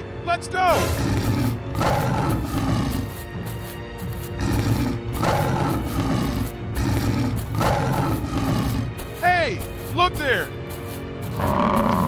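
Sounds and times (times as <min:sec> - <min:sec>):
cartoon background music: 0:00.0 - 0:12.0
tiger roar sound effects: 0:00.7 - 0:09.2, 0:11.3 - 0:12.0.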